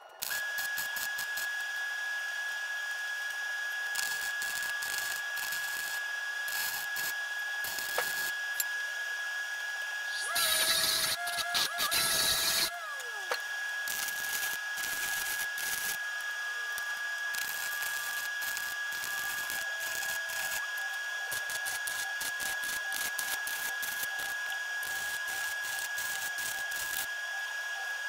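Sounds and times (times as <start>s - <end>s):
power tool spinning down: 0.0s - 28.0s
arc welding crackling: 0.2s - 1.8s, 3.2s - 8.6s, 10.1s - 27.1s
steady high-pitched tone: 10.0s - 13.4s.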